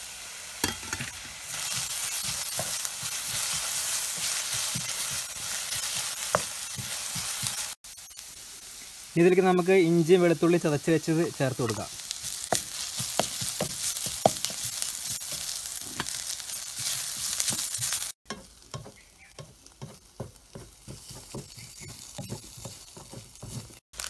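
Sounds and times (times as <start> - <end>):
vegetables sizzling in oil: 0.0 - 24.0
wooden spatula scraping pan: 16.8 - 23.8.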